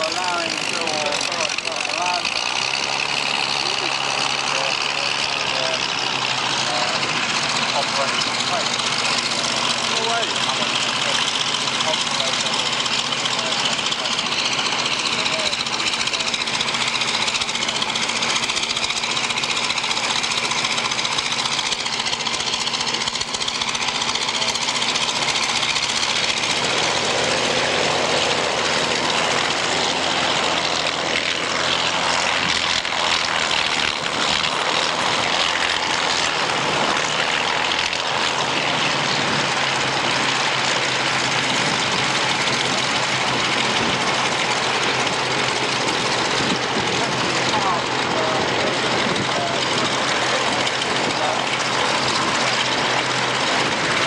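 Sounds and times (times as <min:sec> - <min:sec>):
propeller engine drone: 0:00.0 - 0:54.0.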